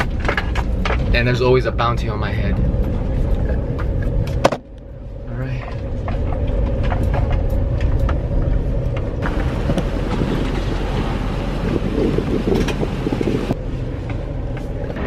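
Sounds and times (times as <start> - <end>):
outdoor rushing noise: 0.0 - 15.0
vehicle engine hum: 0.0 - 15.0
wind buffeting microphone: 0.0 - 15.0.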